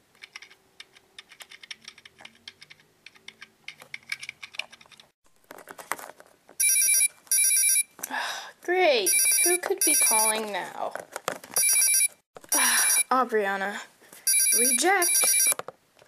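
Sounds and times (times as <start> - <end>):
plastic toys clicking on table: 0.1 - 5.2
phone ringtone: 6.6 - 7.9, 9.0 - 10.4, 11.6 - 13.1, 14.2 - 15.6.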